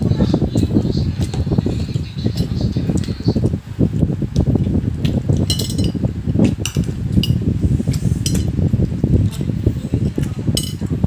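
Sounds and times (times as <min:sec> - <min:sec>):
low rumbling noise: 0:00.0 - 0:11.0
spoon clinking on dishes: 0:05.4 - 0:06.0, 0:10.6 - 0:10.9.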